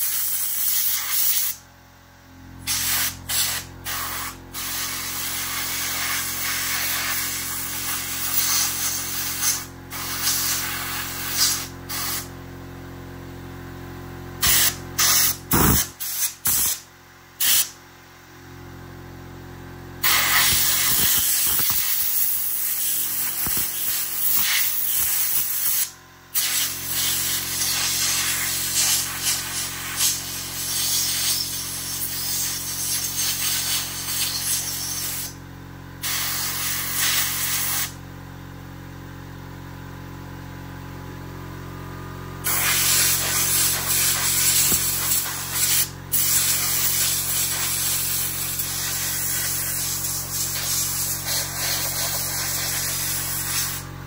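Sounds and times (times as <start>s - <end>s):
compressed air hissing: 0.0s - 1.6s, 2.6s - 12.3s, 14.4s - 16.8s, 17.4s - 17.8s, 20.0s - 35.4s, 36.0s - 38.0s, 42.4s - 53.9s.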